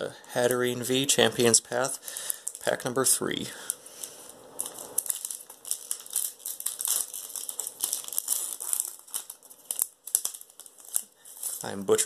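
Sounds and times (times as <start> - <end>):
foil wrapper crinkling and tearing: 1.8 - 2.9, 3.6 - 12.0.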